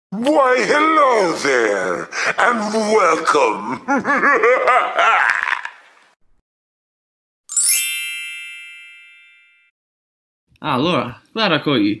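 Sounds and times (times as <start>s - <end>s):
rising shimmer into bright ding: 7.5s - 9.7s.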